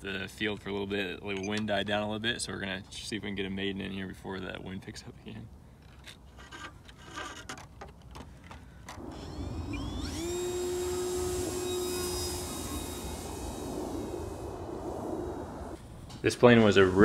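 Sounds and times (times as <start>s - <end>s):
electric motor propeller whine: 9.0s - 15.9s
wind noise: 9.0s - 17.0s.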